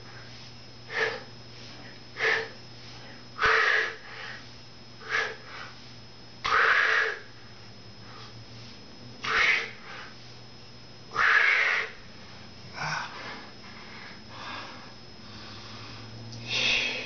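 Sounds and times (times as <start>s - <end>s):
man breathing heavily: 0.0s - 10.4s, 11.1s - 17.0s.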